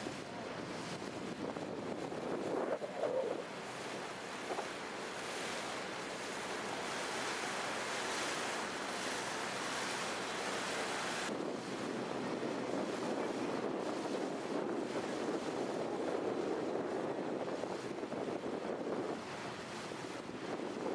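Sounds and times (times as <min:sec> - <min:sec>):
wind on microphone: 0:00.0 - 0:04.8, 0:11.1 - 0:20.9
water rushing past boat: 0:00.0 - 0:20.9.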